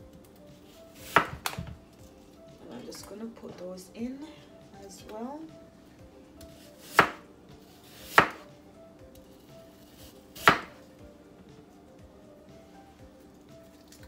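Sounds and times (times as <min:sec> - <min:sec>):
knife chopping on wooden board: 0:01.0 - 0:01.7, 0:06.6 - 0:07.2, 0:07.8 - 0:08.5, 0:10.4 - 0:10.8.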